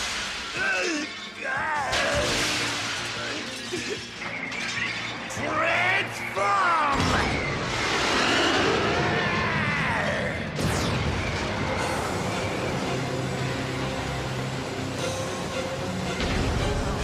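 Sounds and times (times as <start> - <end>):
cartoon jet engine whine: 7.1 - 16.8
background music with held chords: 11.2 - 17.0.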